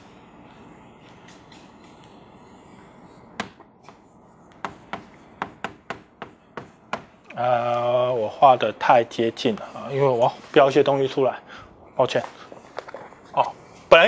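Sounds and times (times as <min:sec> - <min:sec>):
chalk tapping on a blackboard: 0:03.4 - 0:07.2.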